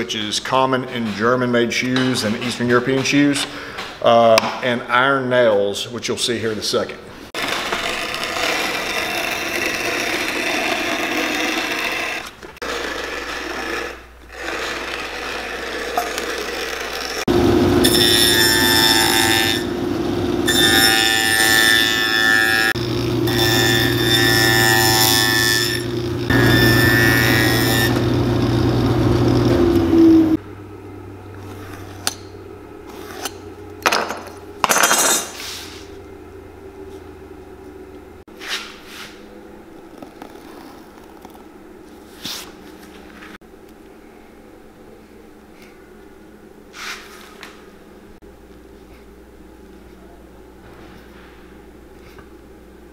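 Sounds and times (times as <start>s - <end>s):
shoe repair machines running: 7.4s - 30.5s.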